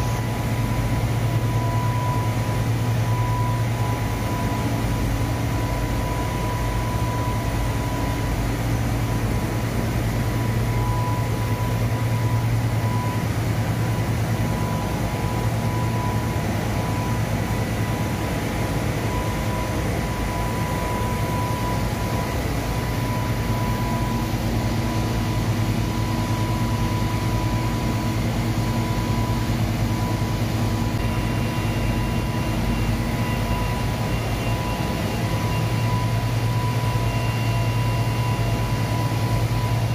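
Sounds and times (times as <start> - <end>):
washing machine hum and whine: 0.0 - 39.9.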